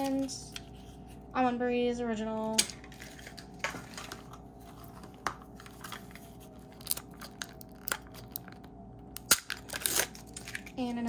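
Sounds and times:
plastic packaging crinkling: 2.8 - 11.0.

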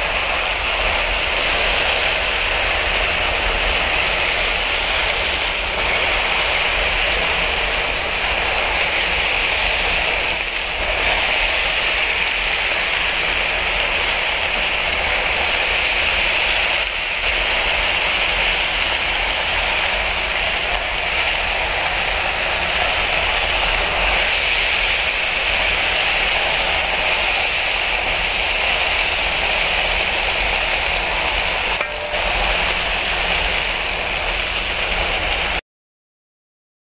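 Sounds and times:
stir-fry sizzling in oil: 31.5 - 34.1.

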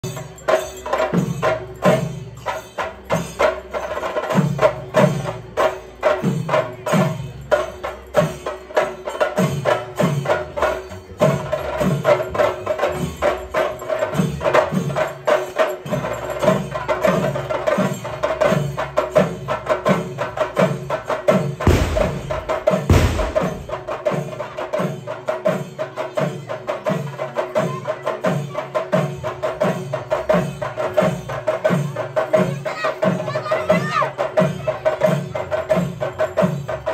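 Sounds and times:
fast drumming: 0.0 - 36.9
deep drum strokes: 21.4 - 24.4
heavy thumps: 21.7 - 23.8.

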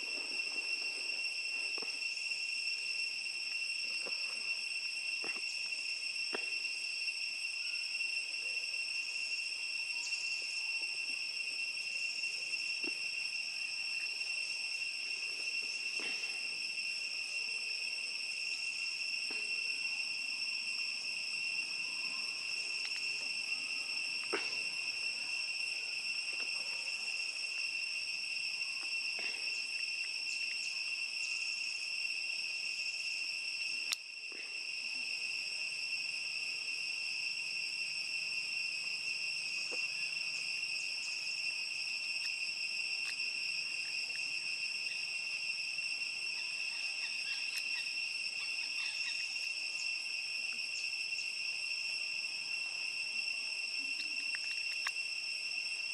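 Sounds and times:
shrill insect chorus: 0.0 - 55.9
faint ticks: 33.8 - 34.5, 42.2 - 42.4, 54.0 - 55.0.

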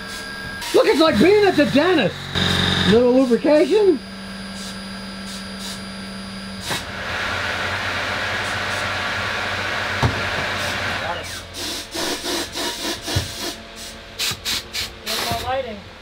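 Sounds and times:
machine low hum: 0.0 - 14.2
compressed air hissing: 4.6 - 5.8, 11.2 - 15.5.

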